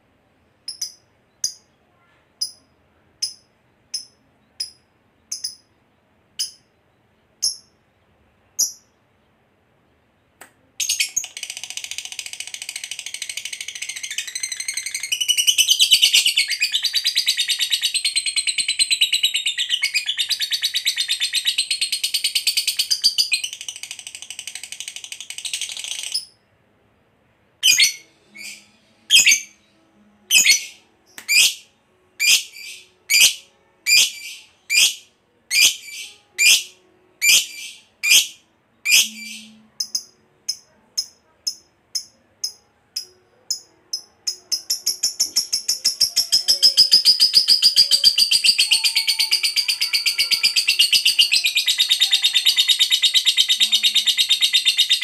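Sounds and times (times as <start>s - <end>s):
bird chirping: 0.7s - 26.4s, 27.6s - 55.0s.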